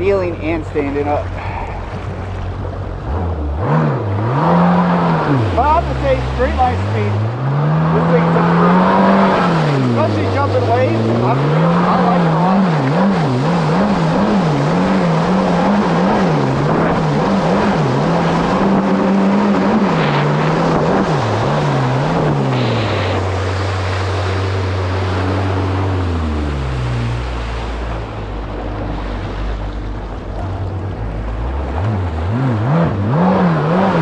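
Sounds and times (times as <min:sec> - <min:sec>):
jet ski engine revving: 0:00.0 - 0:34.0.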